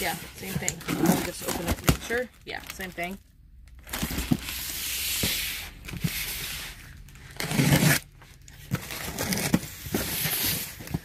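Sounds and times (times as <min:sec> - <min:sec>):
cardboard cartons scraping: 0:00.0 - 0:02.3, 0:03.9 - 0:11.0
box cutter slitting packing tape: 0:07.4 - 0:08.1, 0:08.8 - 0:10.7.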